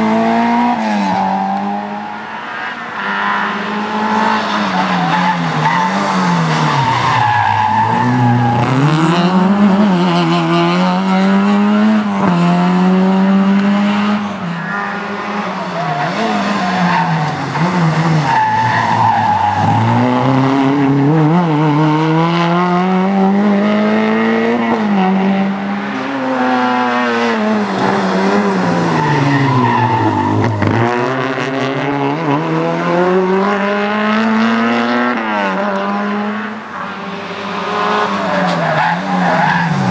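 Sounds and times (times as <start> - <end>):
rally car engines revving: 0.0 - 39.9.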